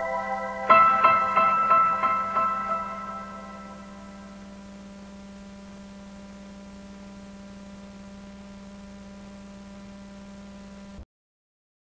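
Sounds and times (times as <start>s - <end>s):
background hiss: 0.0s - 8.8s
electrical hum: 0.0s - 11.0s.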